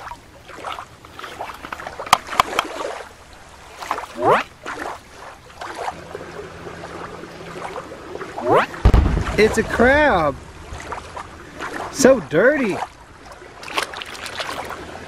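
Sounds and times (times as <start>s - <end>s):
toys splashing in shallow water: 7.0s - 15.0s.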